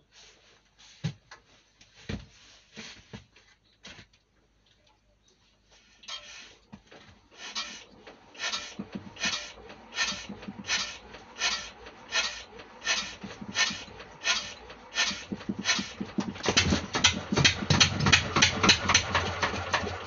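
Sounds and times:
engine cranked by hand swishing: 0:06.0 - 0:20.0.

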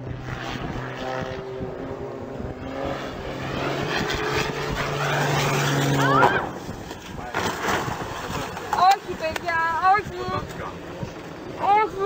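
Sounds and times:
propeller plane engine droning: 0:00.0 - 0:12.0
rising high-pitched sound: 0:04.8 - 0:06.7.

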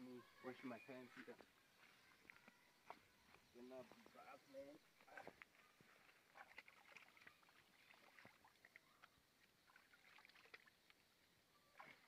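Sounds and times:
water splashing as hands rinsed: 0:06.3 - 0:11.1.

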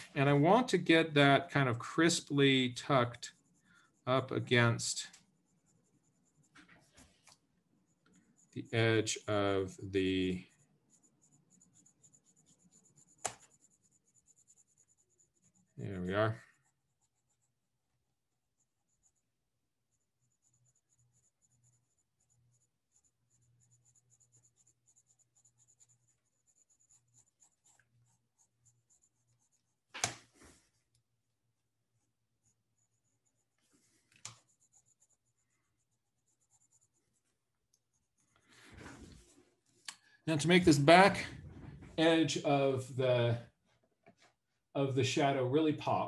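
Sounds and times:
pencil scratching on paper: 0:02.0 - 0:04.6, 0:05.2 - 0:06.9, 0:07.9 - 0:30.6, 0:31.6 - 0:39.3.

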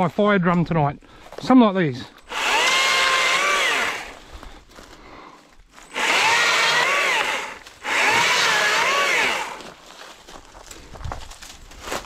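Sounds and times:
electric chainsaw cutting branches: 0:02.3 - 0:04.2, 0:05.9 - 0:09.8.

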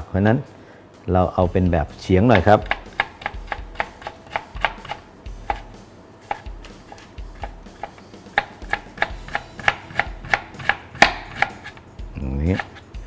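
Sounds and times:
knife tapping on cutting board: 0:02.4 - 0:05.7, 0:06.3 - 0:11.7.

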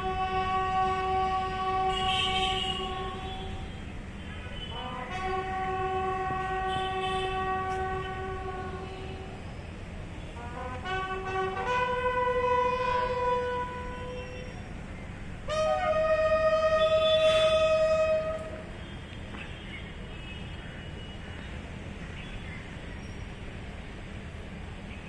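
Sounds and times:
bugle call: 0:10.4 - 0:14.4.

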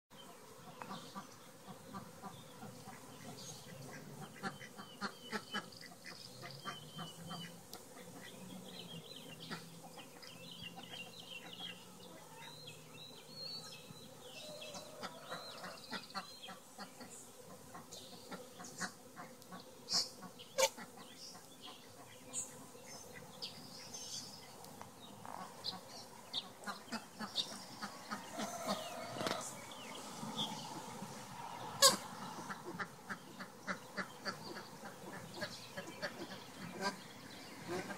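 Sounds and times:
birds calling: 0:00.2 - 0:37.9
honeybees buzzing: 0:00.2 - 0:37.9.

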